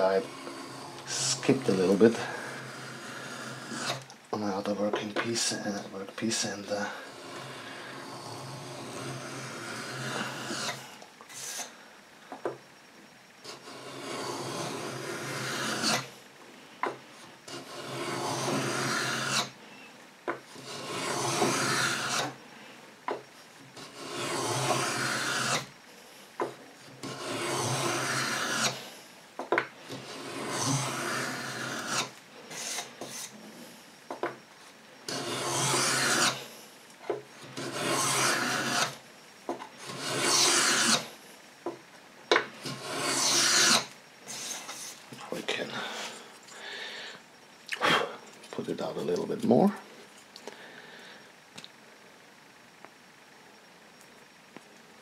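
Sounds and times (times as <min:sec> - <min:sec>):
blade scraping wood: 0:00.0 - 0:11.8, 0:13.4 - 0:16.2, 0:16.8 - 0:19.6, 0:20.3 - 0:22.4, 0:23.2 - 0:25.8, 0:26.4 - 0:29.1, 0:29.8 - 0:33.8, 0:35.1 - 0:47.1.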